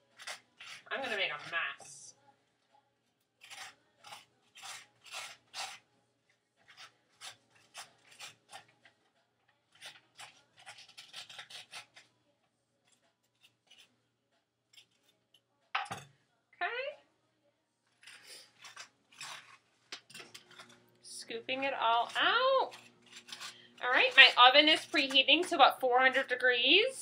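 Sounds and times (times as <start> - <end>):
spoon scraping squash: 0.0 - 2.0, 3.4 - 5.9, 6.6 - 12.2, 12.8 - 14.0, 14.7 - 15.4, 18.0 - 27.0.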